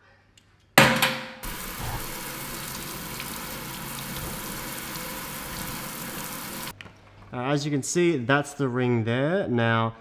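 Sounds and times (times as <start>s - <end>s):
tap water running into sink: 1.4s - 6.8s.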